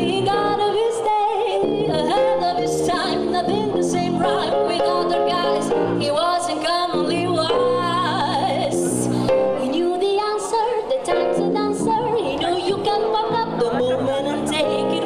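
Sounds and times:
piano: 0.0 - 15.0
woman singing jazz: 0.0 - 15.0
electric bass: 1.7 - 6.3.

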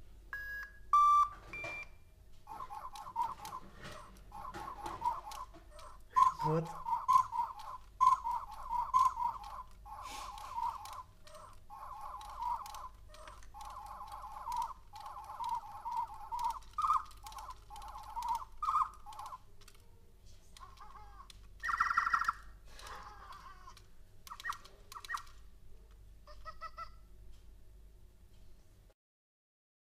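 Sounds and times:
electronic toy owls chirping: 2.4 - 19.8, 20.6 - 25.5, 26.3 - 27.0.

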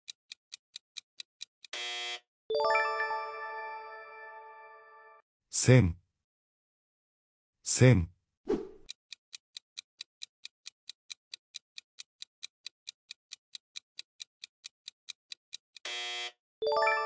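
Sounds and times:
clock ticking countdown: 0.1 - 1.7, 8.8 - 15.8.

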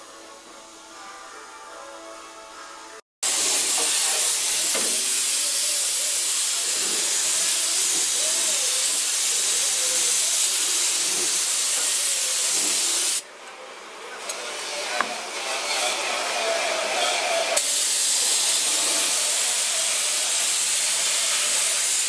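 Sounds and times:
music: 0.0 - 3.0
spray paint hissing on metal: 3.2 - 13.2, 15.0 - 22.0.

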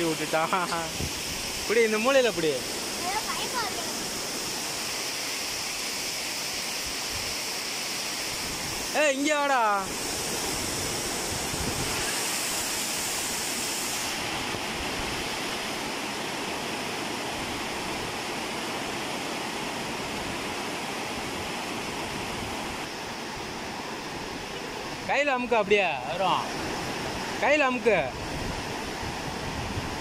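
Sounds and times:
water rushing and churning: 0.0 - 30.0.

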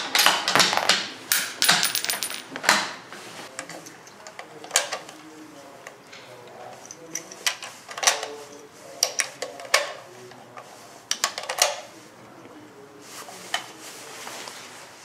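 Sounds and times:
rifle cartridges clinking: 0.2 - 2.5.

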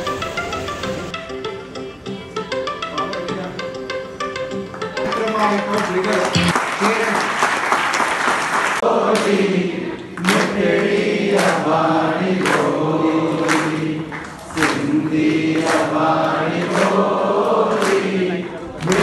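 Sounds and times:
strong beat: 5.0 - 6.6
many voices singing together: 8.8 - 19.0.

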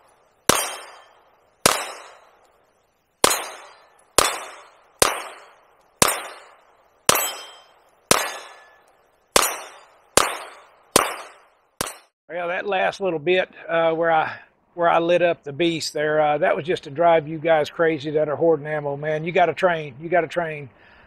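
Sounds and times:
pistol shots with echo: 0.5 - 2.4, 3.2 - 8.8, 9.4 - 12.1.

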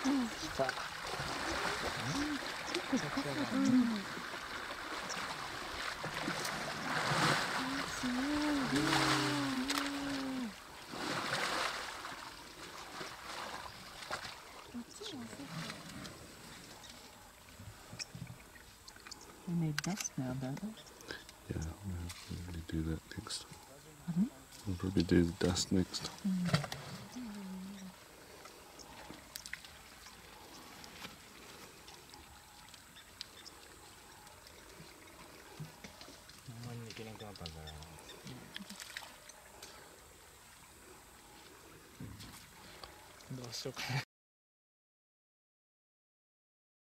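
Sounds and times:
mud and water sloshing: 0.0 - 20.6, 27.9 - 44.0
mud squelching and clicking: 28.4 - 39.8.

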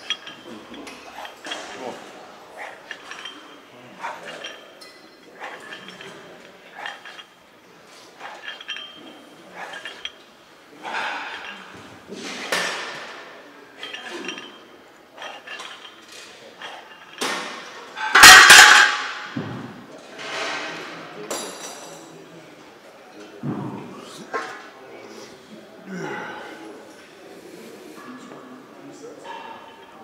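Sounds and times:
weight plates clinking: 0.0 - 19.6.

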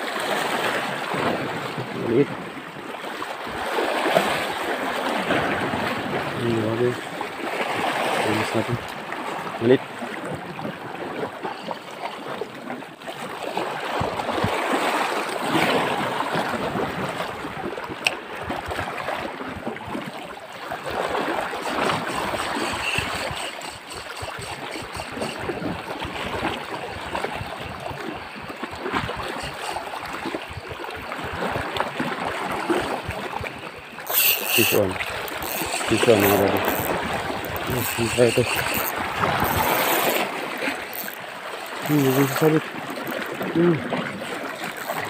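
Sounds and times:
sea water washing over rocks: 12.3 - 45.0.

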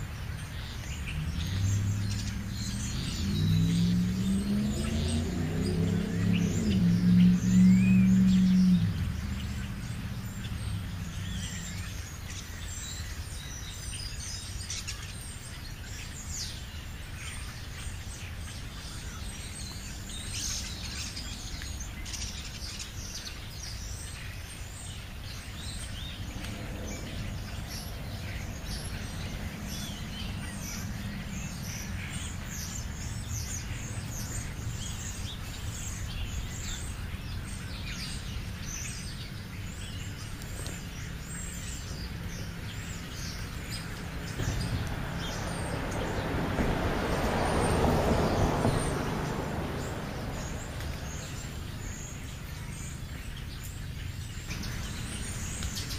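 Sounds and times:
small birds chirping: 0.0 - 55.9
steady low rumble: 25.3 - 38.8.

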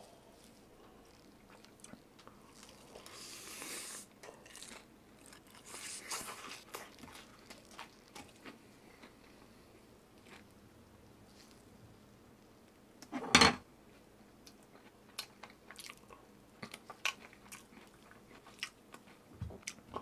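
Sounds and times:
crunchy food chewing: 0.4 - 9.5, 10.1 - 10.6, 14.5 - 20.0.

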